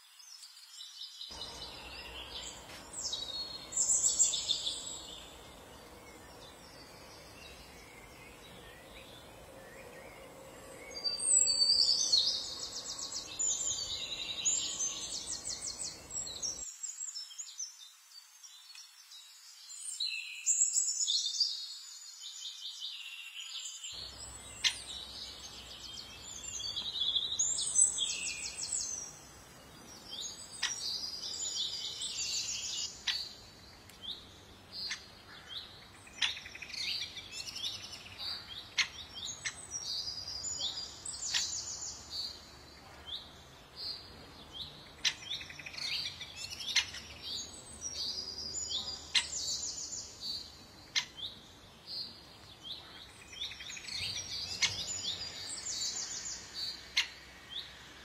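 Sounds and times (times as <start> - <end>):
small birds trilling: 23.6 - 58.0.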